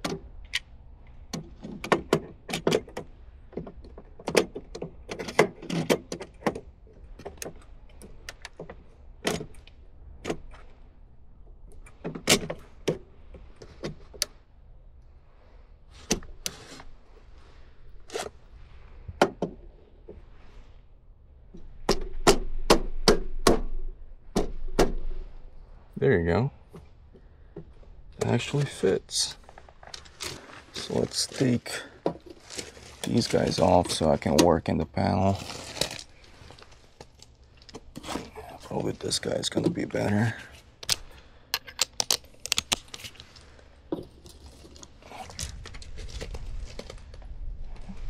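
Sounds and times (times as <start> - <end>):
plastic and metal clicks: 40.8 - 43.4.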